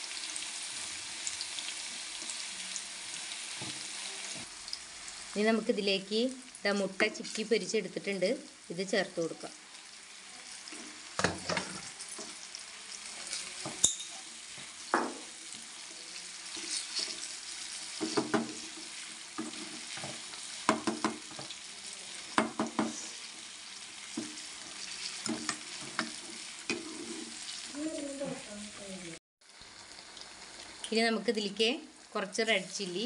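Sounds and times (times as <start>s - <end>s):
frying sizzle: 0.0s - 33.0s
spatula scraping a frying pan: 16.4s - 20.6s, 22.8s - 27.7s.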